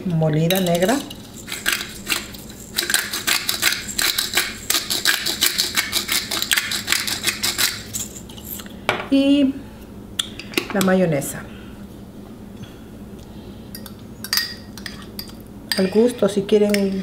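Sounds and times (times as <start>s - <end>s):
pepper grinder clicking: 1.4s - 8.2s.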